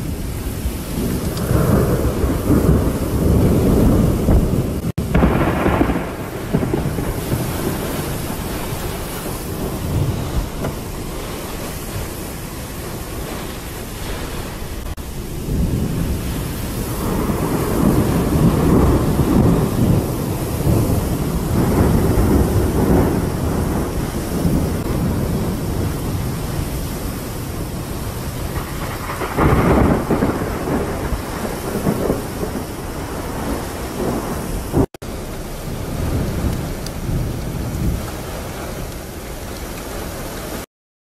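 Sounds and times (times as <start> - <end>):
heavy rain: 0.0 - 40.7
rolling thunder: 0.0 - 40.7.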